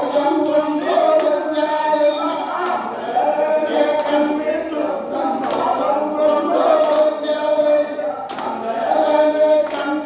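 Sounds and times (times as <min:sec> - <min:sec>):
group of men singing: 0:00.0 - 0:10.0
man singing into a microphone: 0:00.0 - 0:10.0
sharp hand claps: 0:01.1 - 0:02.9, 0:03.9 - 0:04.4, 0:05.4 - 0:05.8, 0:06.8 - 0:07.2, 0:08.2 - 0:08.6, 0:09.6 - 0:10.0.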